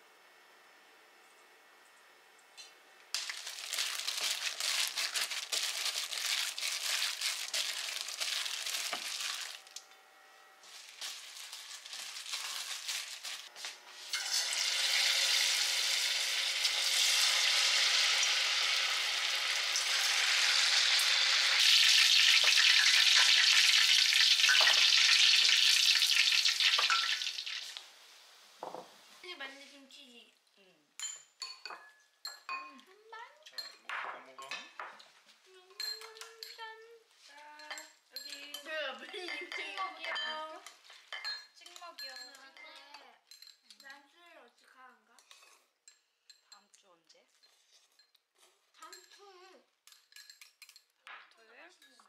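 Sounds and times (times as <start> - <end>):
meat deep-frying in oil: 3.2 - 9.8, 10.9 - 28.6.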